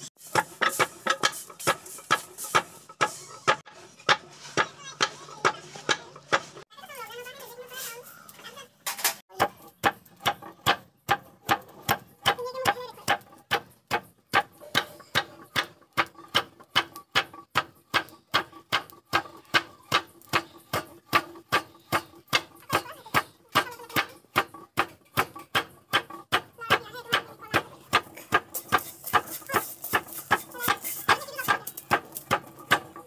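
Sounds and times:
wooden rice-pounding lever knocking: 0:00.3 - 0:04.3.

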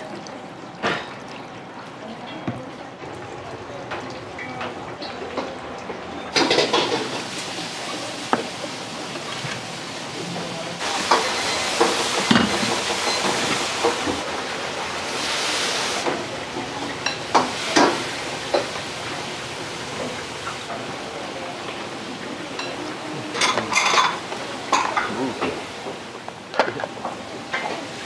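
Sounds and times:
metal bowls and utensils clinking: 0:03.9 - 0:14.2, 0:22.5 - 0:25.6
sizzling hiss of cooking: 0:06.3 - 0:26.2.

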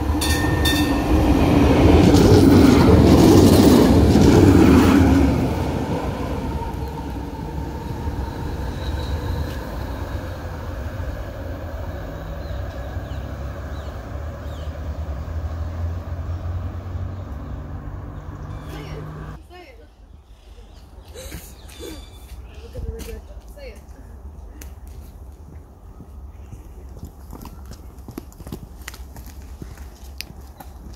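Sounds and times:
tram passing on rails: 0:00.0 - 0:19.4.

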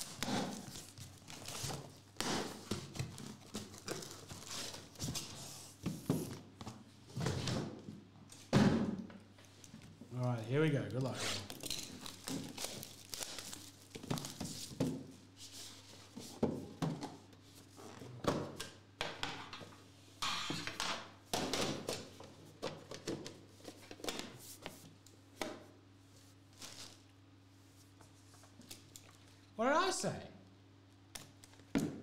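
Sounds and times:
plastic shrink wrap crinkling: 0:11.4 - 0:14.7.

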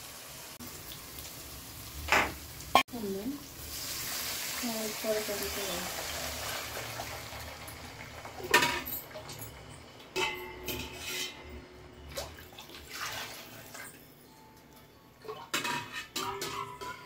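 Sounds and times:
metal spoon clanking on pot: 0:08.4 - 0:11.6, 0:15.3 - 0:17.0.

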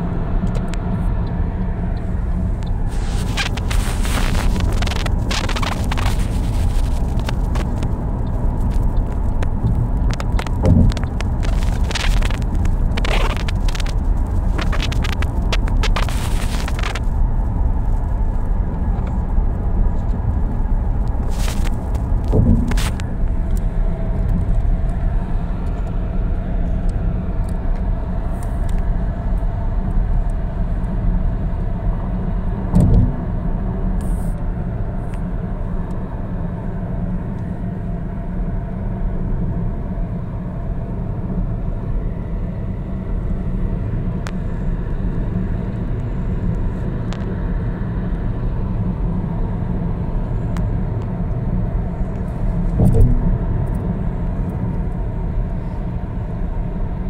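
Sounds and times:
car engine and tyre rumble: 0:00.0 - 0:57.0
brief thump: 0:10.6 - 0:11.0, 0:22.3 - 0:23.0, 0:32.7 - 0:33.2, 0:52.8 - 0:53.4.

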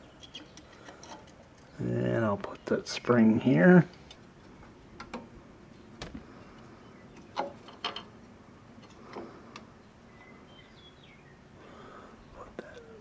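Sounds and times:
small metal clicks: 0:00.2 - 0:01.7.

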